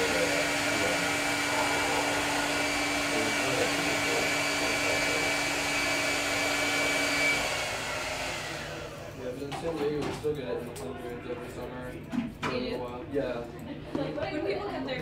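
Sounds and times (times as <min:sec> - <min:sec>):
hair dryer running: 0:00.0 - 0:09.4.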